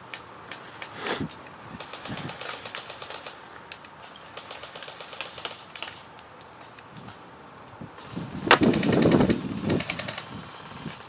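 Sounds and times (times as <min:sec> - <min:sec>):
fast rattling clicks: 0:01.8 - 0:06.8, 0:08.5 - 0:11.0
airsoft gun crack: 0:08.5 - 0:10.3.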